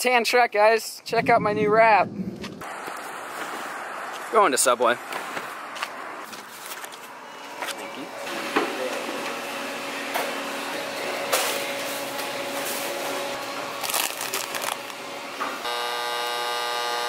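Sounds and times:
restaurant room noise: 0:05.0 - 0:15.7
chip bag crinkling: 0:13.8 - 0:15.0
soda dispenser buzzing: 0:15.6 - 0:17.0.

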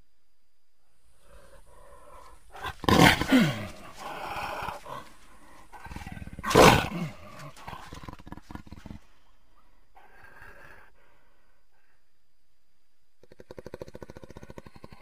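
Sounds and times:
jaguar roaring: 0:01.2 - 0:09.1.

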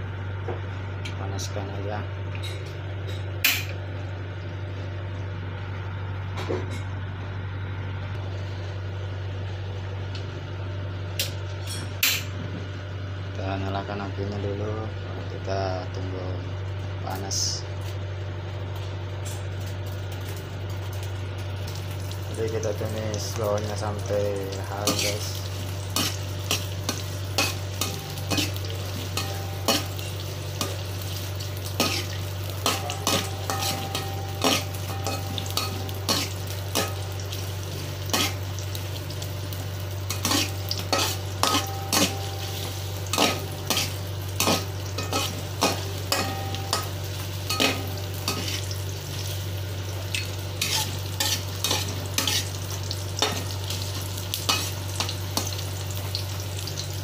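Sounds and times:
steady low hum: 0:00.0 - 0:57.0
shallots sizzling in oil: 0:19.5 - 0:57.0
metal spatula scraping a wok: 0:31.8 - 0:36.9, 0:38.1 - 0:38.4, 0:40.1 - 0:42.2, 0:43.1 - 0:46.2, 0:50.6 - 0:52.6.

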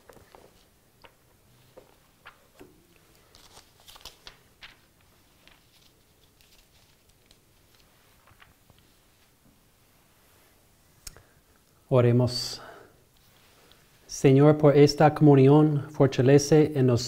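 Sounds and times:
paper pages rustling: 0:00.0 - 0:09.4.

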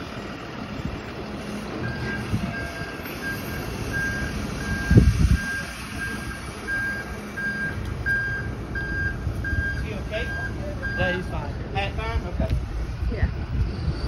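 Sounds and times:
low engine rumble: 0:00.0 - 0:14.0
reversing alarm beeping: 0:01.8 - 0:11.4.

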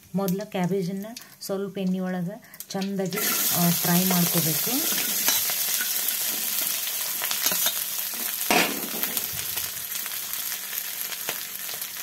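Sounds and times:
cabbage sizzling in a pan: 0:02.6 - 0:12.0
steel spoon scraping a pan: 0:04.9 - 0:08.7.

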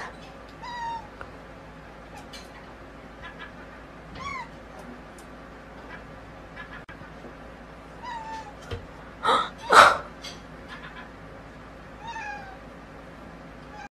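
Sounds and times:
cat meowing: 0:08.0 - 0:08.6, 0:12.0 - 0:12.6.

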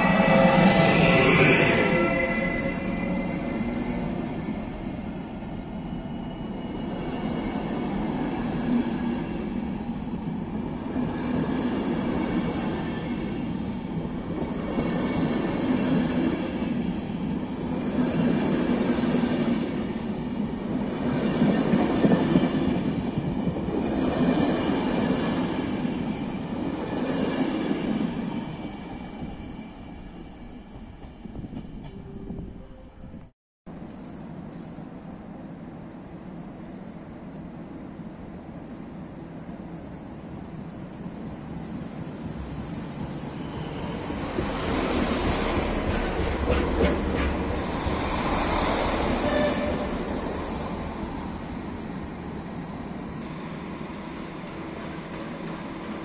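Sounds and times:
train wheels rolling over track: 0:42.2 - 0:51.3, 0:52.6 - 0:56.0.

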